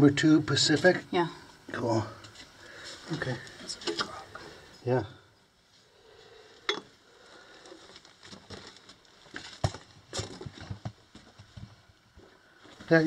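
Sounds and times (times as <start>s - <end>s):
footsteps scuffing on loose rock: 8.3s - 11.7s.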